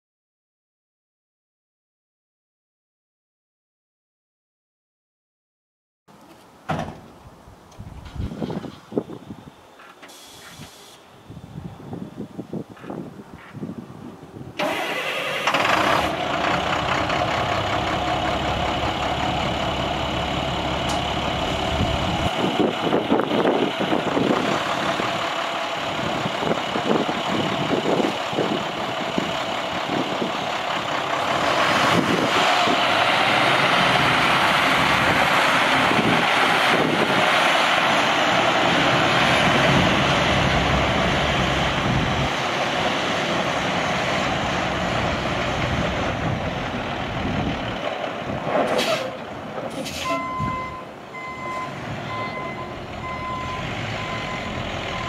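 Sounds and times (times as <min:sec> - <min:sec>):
diesel truck engine starting and running: 0:14.6 - 0:55.0.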